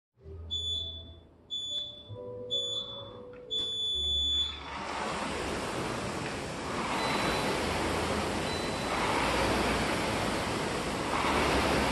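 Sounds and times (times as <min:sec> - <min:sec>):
countdown beeps: 0:00.5 - 0:04.6
rowing machine flywheel whooshing: 0:04.4 - 0:11.9.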